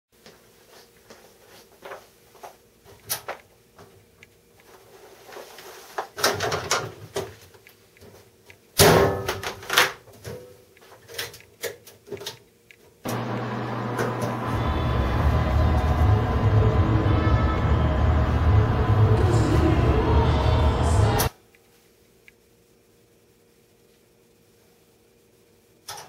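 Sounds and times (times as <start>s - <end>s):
loud music with strong bass: 14.6s - 21.3s.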